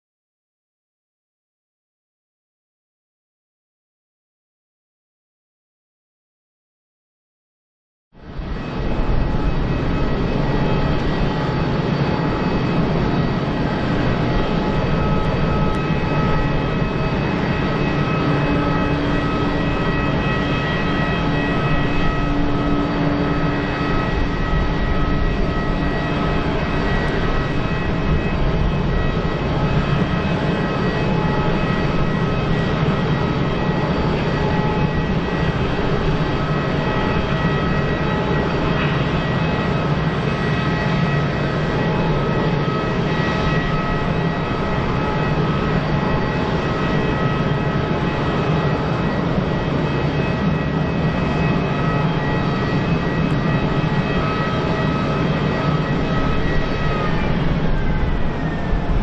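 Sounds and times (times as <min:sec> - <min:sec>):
jet engines rumbling with high whine: 0:08.2 - 0:59.0.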